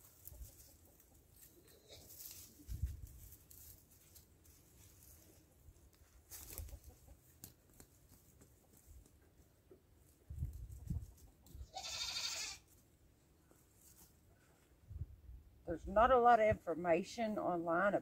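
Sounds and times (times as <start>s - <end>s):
goat bleating: 11.6s - 12.7s.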